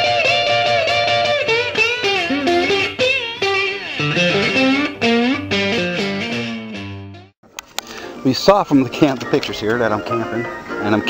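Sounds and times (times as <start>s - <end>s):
guitar melody with bending notes: 0.0s - 11.0s.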